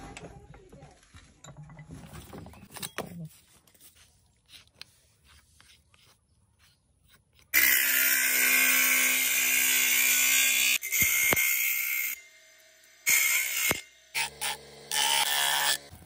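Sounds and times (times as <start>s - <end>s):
chalk scratching: 3.3s - 7.6s.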